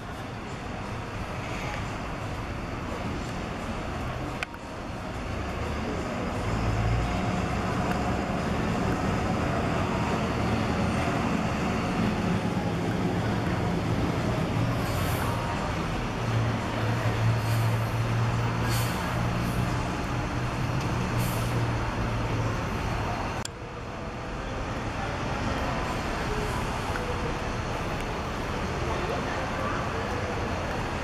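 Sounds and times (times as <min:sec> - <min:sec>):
bus diesel engine running: 0:00.0 - 0:31.0
air brake hisses: 0:17.4 - 0:17.9, 0:18.6 - 0:19.2, 0:21.2 - 0:21.6.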